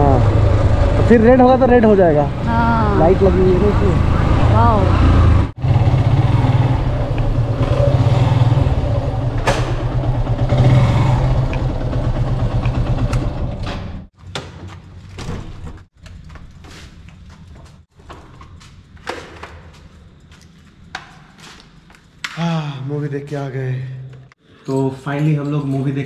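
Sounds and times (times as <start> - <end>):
motorcycle engine running: 5.6 - 14.1.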